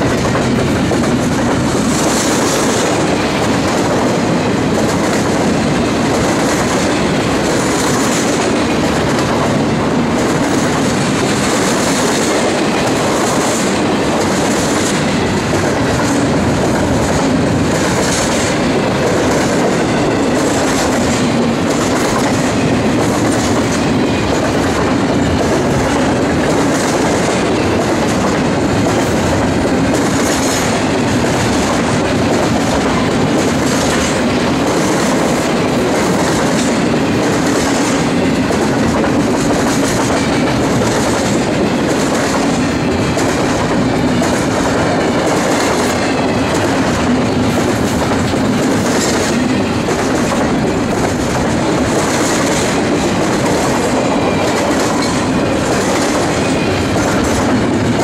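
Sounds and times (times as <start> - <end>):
train wheels rumbling on rail: 0.0 - 58.0
wheels clickety-clack: 0.0 - 58.0.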